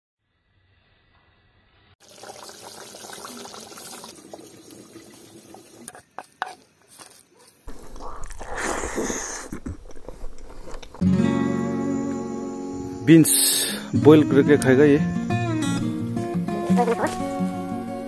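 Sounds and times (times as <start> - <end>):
metal spoon scraping: 5.9 - 8.0.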